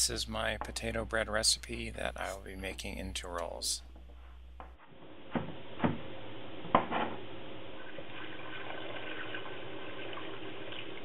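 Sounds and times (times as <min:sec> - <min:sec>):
water pouring into a pot: 0:07.6 - 0:11.0.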